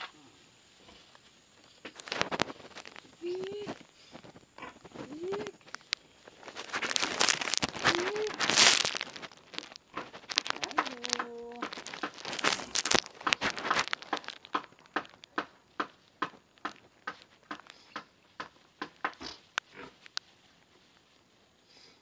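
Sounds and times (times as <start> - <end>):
plastic bags crinkling: 1.9 - 17.8.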